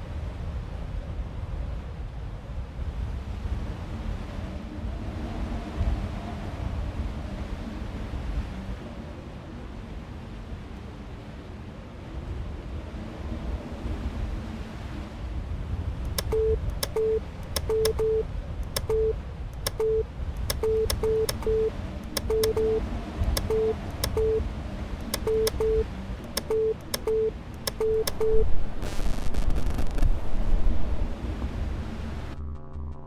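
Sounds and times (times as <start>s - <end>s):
push buttons clicking: 16.1s - 24.4s, 25.0s - 28.4s
short beeps: 16.2s - 22.8s, 23.4s - 24.4s, 25.2s - 25.8s, 26.4s - 28.5s
low rumble: 19.8s - 33.0s.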